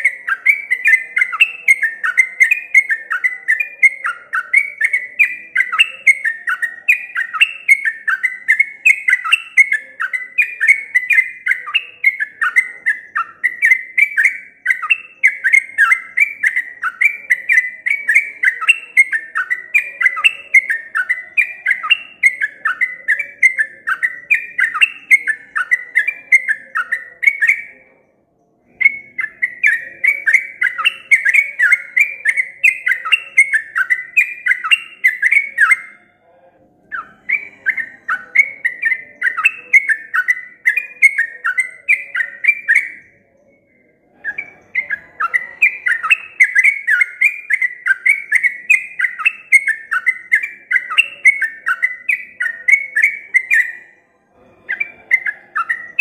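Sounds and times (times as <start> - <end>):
bird singing sliding whistled notes: 0.0 - 27.9, 28.6 - 36.0, 36.9 - 53.9.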